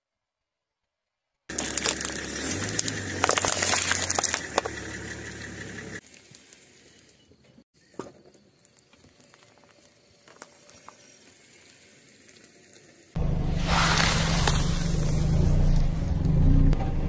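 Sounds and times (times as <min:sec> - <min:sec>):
tyre crushing objects crackling: 0:01.5 - 0:04.8, 0:13.5 - 0:16.0.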